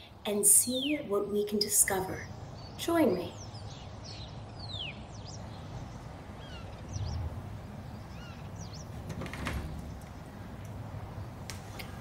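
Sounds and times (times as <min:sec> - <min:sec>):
faint bird chirps: 0:02.2 - 0:09.0
door thud: 0:09.0 - 0:10.2.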